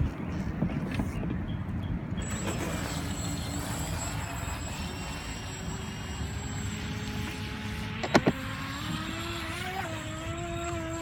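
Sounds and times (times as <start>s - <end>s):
wind rumble on microphone: 0.0s - 3.0s
high-pitched electric motor whine: 2.2s - 11.0s.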